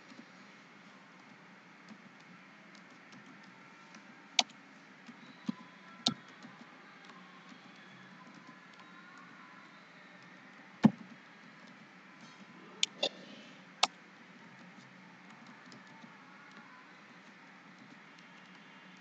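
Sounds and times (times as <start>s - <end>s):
keyboard typing: 12.8s - 13.1s.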